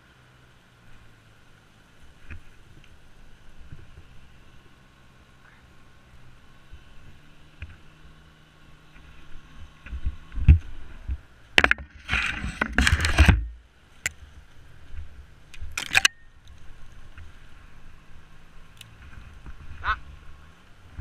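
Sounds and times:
branches scraping: 11.6s - 21.0s.

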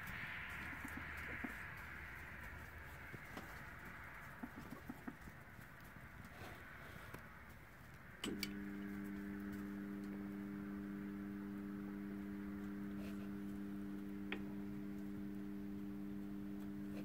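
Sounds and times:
device switch click: 8.2s - 8.6s
device humming low: 8.2s - 17.0s.

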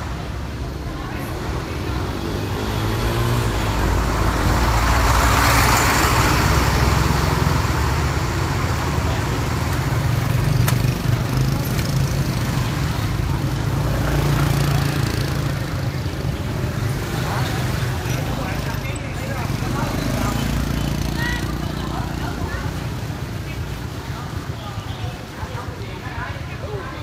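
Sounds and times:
rushing noise: 0.0s - 11.6s
motorbike engines rumbling: 0.0s - 27.0s.

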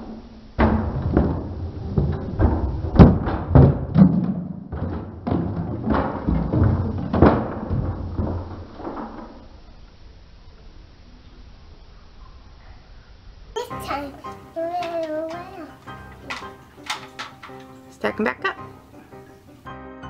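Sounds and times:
toy boxes tumbling onto floor: 0.6s - 9.6s, 14.8s - 17.9s.

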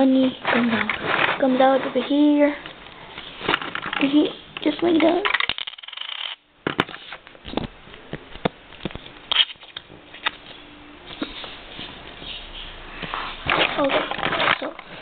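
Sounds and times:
rustling handling noise: 0.0s - 6.1s.

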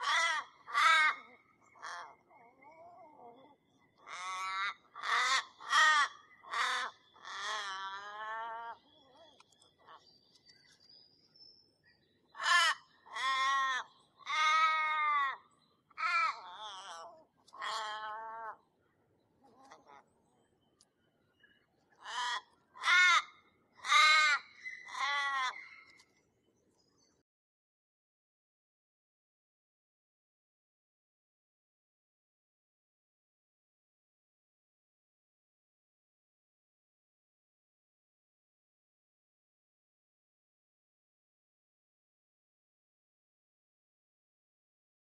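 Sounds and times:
crow cawing: 0.0s - 2.3s, 4.0s - 8.7s, 12.4s - 15.4s, 16.0s - 18.6s, 22.0s - 25.8s.

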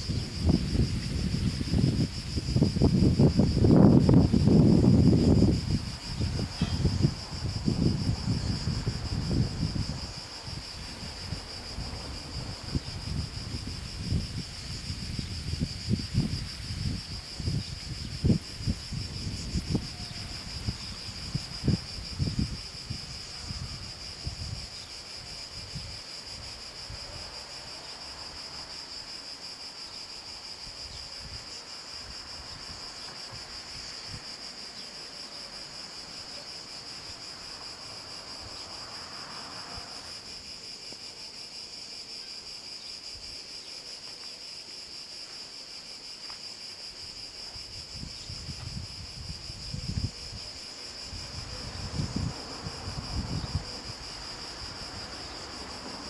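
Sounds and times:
wind on microphone: 0.0s - 29.1s, 30.0s - 34.6s, 46.8s - 56.0s
cicadas buzzing: 0.0s - 56.0s.

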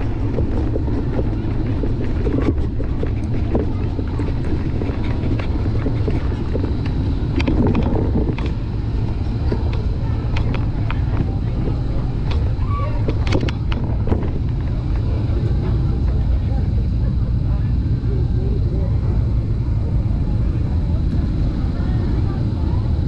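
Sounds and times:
light clicks and rattles: 0.0s - 18.0s
bicycle tyres rolling: 0.0s - 23.0s
wind buffeting microphone: 0.0s - 23.0s.

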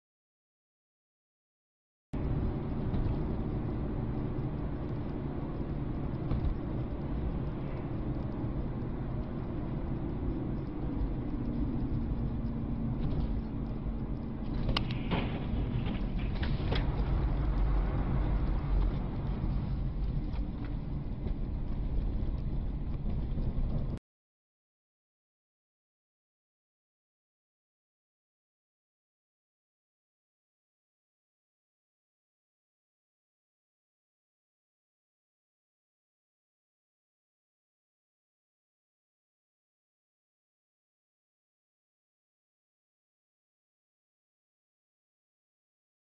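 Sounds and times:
car engine and road rumble: 2.2s - 24.0s.

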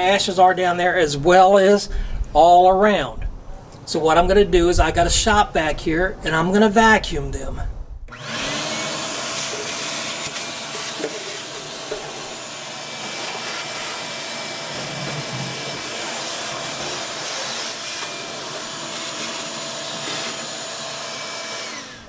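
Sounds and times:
hose sucking ash: 8.1s - 21.9s
shop vac running with whine: 8.1s - 22.0s.

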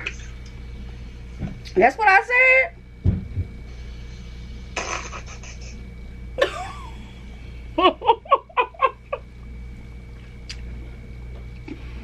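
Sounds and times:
woman laughing: 4.8s - 5.8s, 6.4s - 7.2s, 7.8s - 9.3s.

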